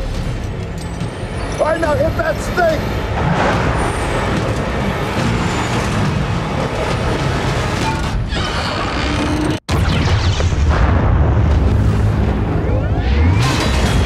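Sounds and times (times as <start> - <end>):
film score music: 0.0 - 14.0.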